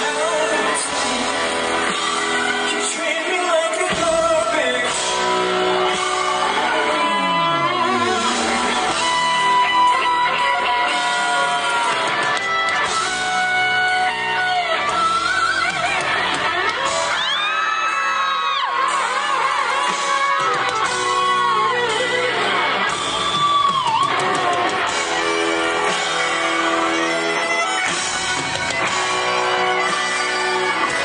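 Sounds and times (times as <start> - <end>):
man singing: 0.0 - 10.0
electric guitar: 0.0 - 31.0
live band music: 0.0 - 31.0.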